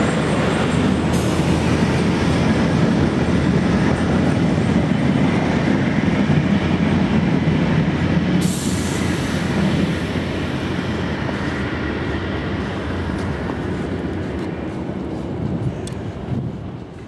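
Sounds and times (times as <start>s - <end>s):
train rumbling through station: 0.0s - 17.0s.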